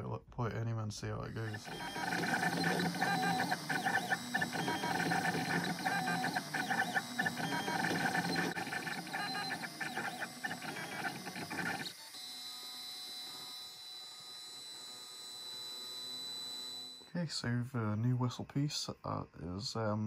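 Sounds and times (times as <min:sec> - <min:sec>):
printer stepper motors whining: 0:01.3 - 0:17.1.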